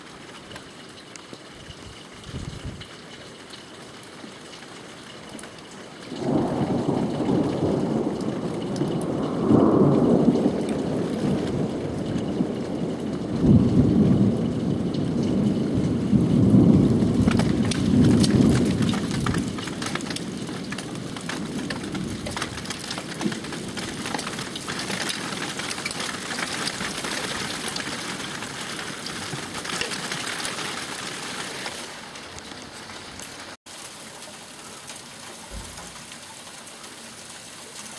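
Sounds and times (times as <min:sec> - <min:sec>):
hail and rain pattering: 0:00.0 - 0:37.9
thunder rumbling: 0:01.6 - 0:02.8, 0:06.1 - 0:33.6.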